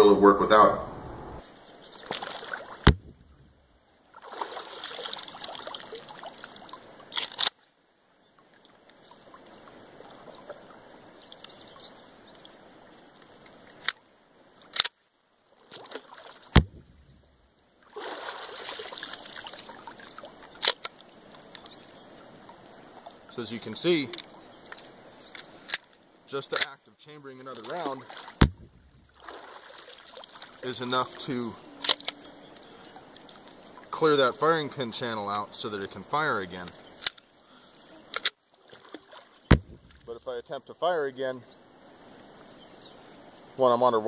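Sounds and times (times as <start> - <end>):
water splashing and trickling: 1.7 - 7.5, 8.2 - 14.8, 15.5 - 43.8
pistol slide racking: 14.7 - 15.0.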